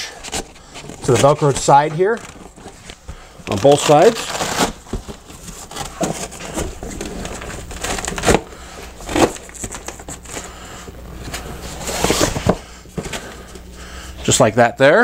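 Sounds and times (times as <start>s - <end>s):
scratchy velcro bursts: 3.5s - 4.7s.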